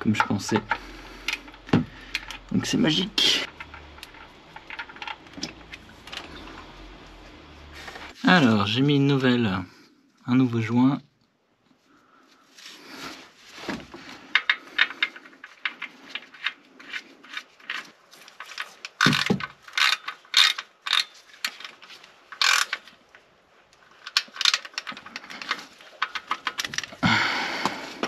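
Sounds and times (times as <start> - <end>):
ratchet wrench clicking: 19.0 - 21.2, 22.3 - 22.8.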